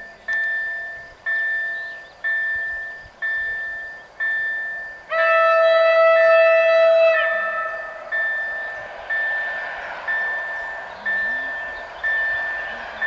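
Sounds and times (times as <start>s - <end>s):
level-crossing warning bell ringing: 0.0s - 13.0s
electric train horn: 5.1s - 8.7s.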